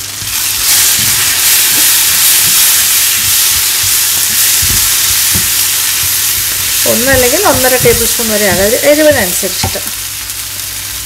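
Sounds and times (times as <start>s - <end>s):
onions and tomato sizzling in oil: 0.0s - 11.0s
spatula knocking against pan: 6.9s - 9.9s.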